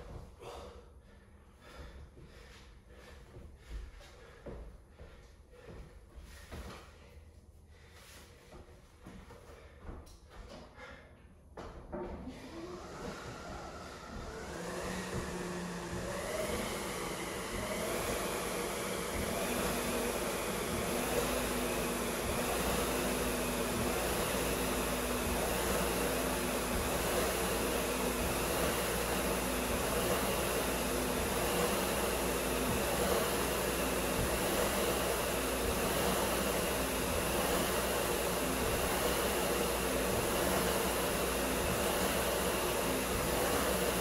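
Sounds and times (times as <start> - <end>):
fan flywheel rushing air: 12.2 - 44.0.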